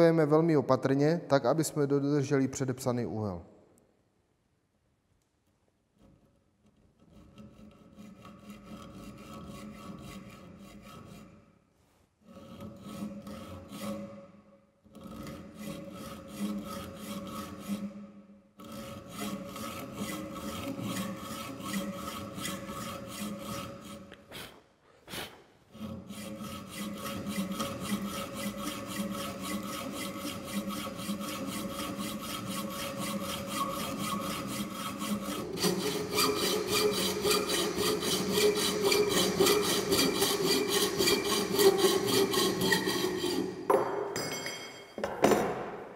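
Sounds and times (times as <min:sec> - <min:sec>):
hacksaw cutting steel: 0:07.0 - 0:11.4, 0:12.3 - 0:14.3, 0:14.9 - 0:18.0, 0:18.6 - 0:24.5, 0:25.1 - 0:44.0.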